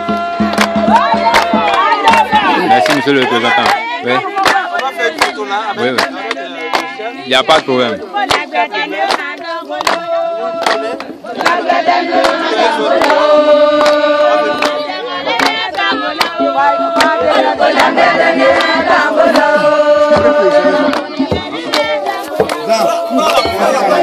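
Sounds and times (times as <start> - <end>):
sharp knocks or claps: 0.0 - 3.8, 4.4 - 6.9, 8.2 - 10.0, 13.8 - 14.0, 14.6 - 22.7
group of people singing: 0.0 - 24.0.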